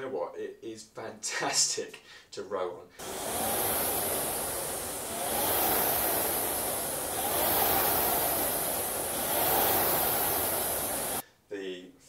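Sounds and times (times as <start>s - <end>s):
rowing machine fan whooshing: 3.0s - 11.2s.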